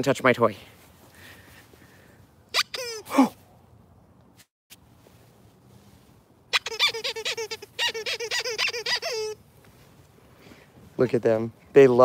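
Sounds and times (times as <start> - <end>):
dog toy squeaking: 2.5 - 3.1, 6.5 - 9.4.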